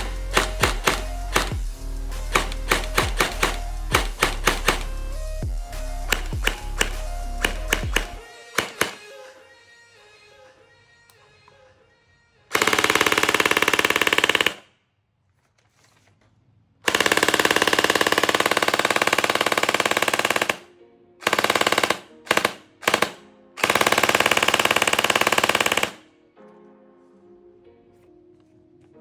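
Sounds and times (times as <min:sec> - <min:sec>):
automatic gunfire bursts: 0:00.0 - 0:01.6, 0:02.3 - 0:04.9, 0:06.1 - 0:09.0, 0:12.5 - 0:14.6, 0:16.9 - 0:26.0.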